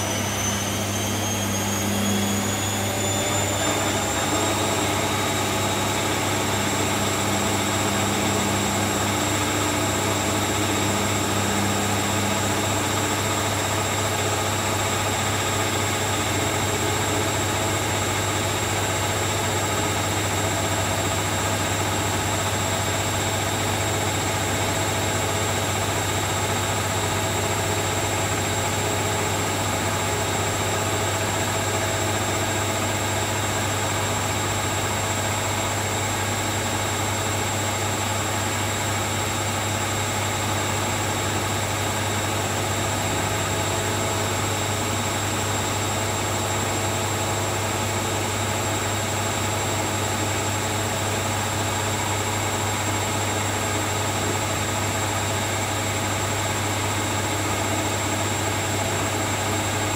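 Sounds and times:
high thin whine: 0.0 - 18.8.

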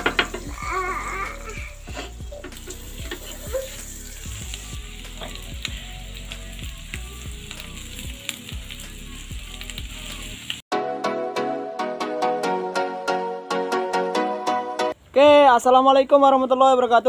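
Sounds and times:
eggs sizzling in butter: 0.0 - 10.6.

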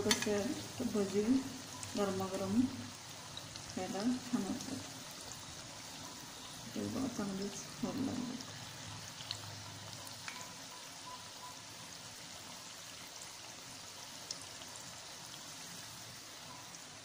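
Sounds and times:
deep-frying sizzle: 0.0 - 17.0.

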